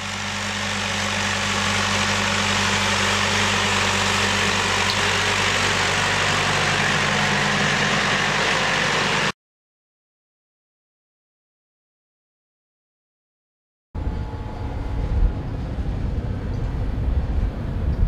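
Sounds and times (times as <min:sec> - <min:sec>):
harvester machinery noise: 0:00.0 - 0:09.4
tractor engine running: 0:00.0 - 0:09.4.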